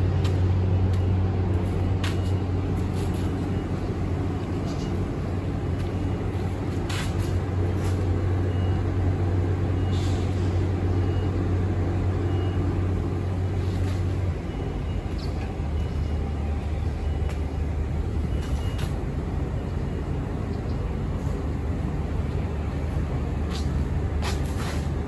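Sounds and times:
train equipment humming: 0:00.0 - 0:25.0.

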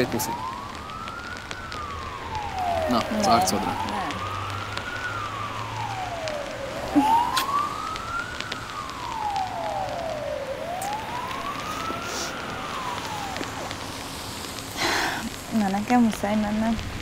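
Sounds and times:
emergency vehicle siren wailing: 0:00.0 - 0:17.0
steady hiss: 0:03.8 - 0:17.0.

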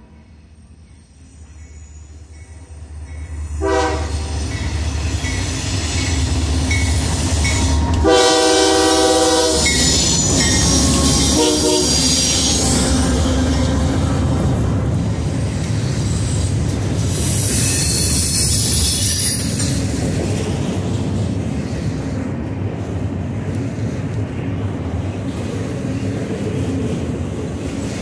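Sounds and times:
train wheels hissing and squealing: 0:00.0 - 0:20.4, 0:21.0 - 0:22.4, 0:23.4 - 0:24.3, 0:25.0 - 0:28.0
freight train rumbling: 0:00.0 - 0:28.0
locomotive air horn blasts: 0:03.6 - 0:04.6, 0:07.6 - 0:09.9, 0:10.9 - 0:12.3.

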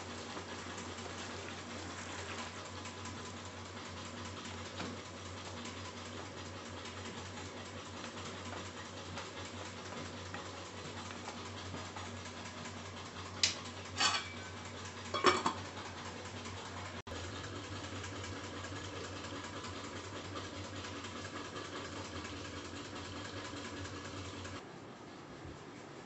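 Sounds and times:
pan lid clinking: 0:15.1 - 0:15.6.

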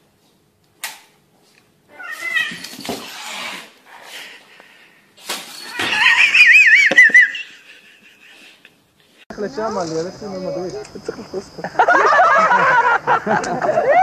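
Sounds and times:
cat yowling: 0:01.9 - 0:03.7, 0:05.6 - 0:06.9.

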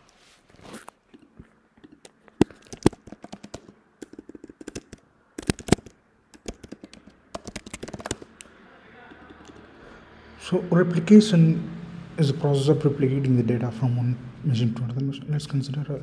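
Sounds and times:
computer keyboard typing: 0:02.4 - 0:09.7.

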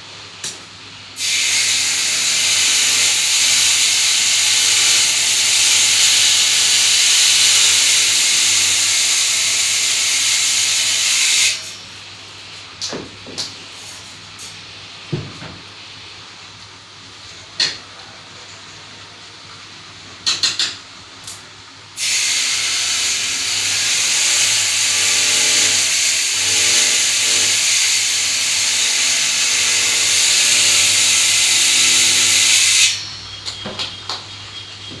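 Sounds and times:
loud steady hiss: 0:00.0 - 0:12.2, 0:21.2 - 0:33.5.

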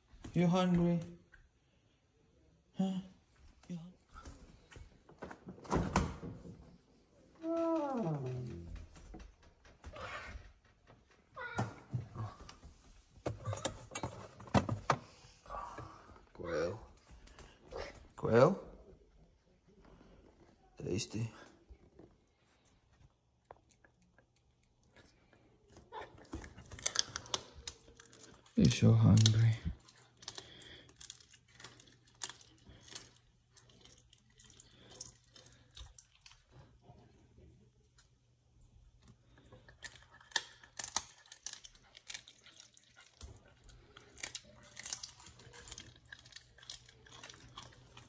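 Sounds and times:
animal chewing and crunching bone: 0:21.8 - 0:37.2, 0:39.0 - 0:48.0.

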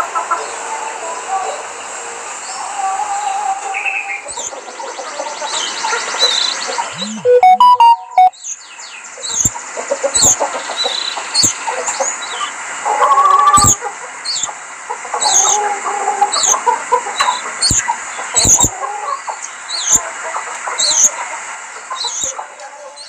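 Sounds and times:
canaries chirping: 0:09.3 - 0:09.5, 0:10.2 - 0:12.4, 0:13.5 - 0:14.5, 0:15.2 - 0:15.6, 0:16.3 - 0:16.6, 0:17.2 - 0:18.7, 0:19.4 - 0:20.1, 0:20.8 - 0:21.2, 0:22.0 - 0:22.4
lower chattering calls: 0:13.5 - 0:14.5, 0:16.3 - 0:16.6, 0:17.2 - 0:18.7.

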